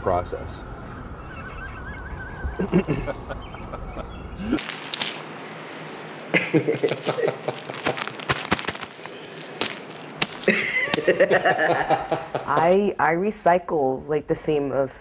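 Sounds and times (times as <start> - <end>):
plastic bag crinkling: 4.6 - 5.3, 7.4 - 10.5.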